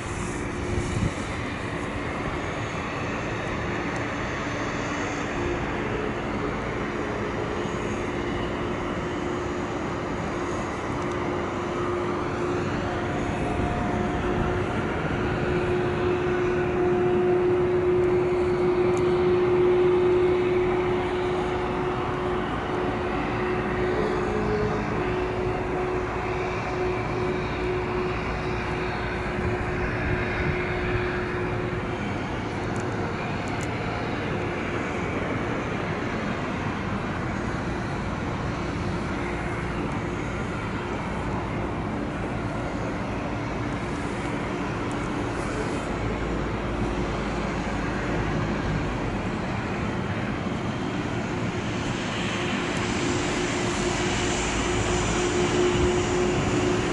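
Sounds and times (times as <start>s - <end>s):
turboprop engines humming: 0.0s - 56.9s.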